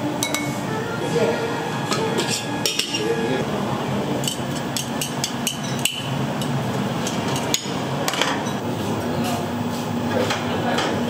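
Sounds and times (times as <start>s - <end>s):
kitchen hum: 0.0s - 11.0s
utensils and dishes clinking: 0.2s - 3.4s, 4.2s - 8.6s.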